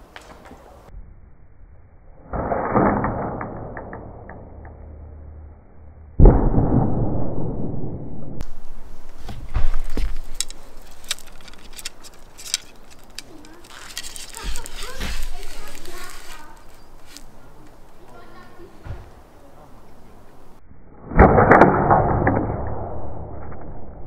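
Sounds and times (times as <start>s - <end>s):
slowed bow string releases: 2.2s - 5.6s, 8.4s - 18.0s
sharp clicks: 9.8s - 18.0s.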